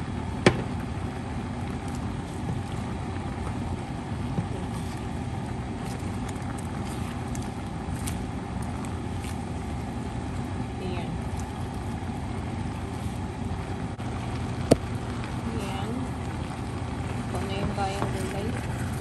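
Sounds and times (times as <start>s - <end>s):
low rumbling cooking noise: 0.0s - 19.0s.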